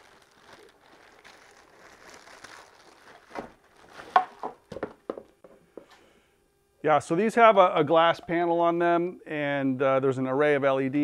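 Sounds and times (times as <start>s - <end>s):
plastic bag crinkling: 0.0s - 5.1s.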